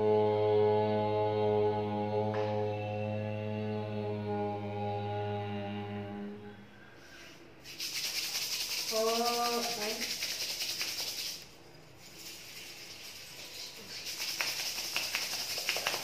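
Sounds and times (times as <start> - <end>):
man chanting: 0.0 - 6.5
palms rubbing together: 7.2 - 16.0.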